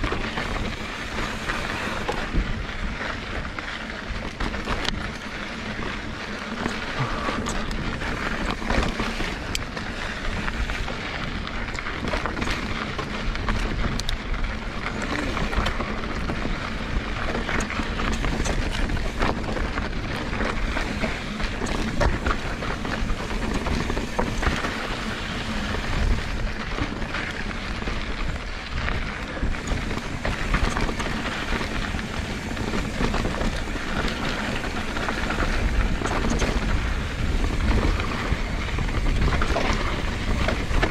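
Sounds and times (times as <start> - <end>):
bike rattling over rocks: 0.0 - 40.9
bike tyres rumbling on dirt: 0.0 - 40.9.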